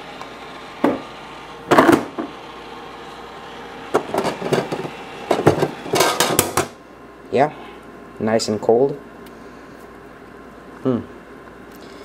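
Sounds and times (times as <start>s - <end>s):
can clunking into tray: 1.7s - 2.3s, 3.9s - 6.8s.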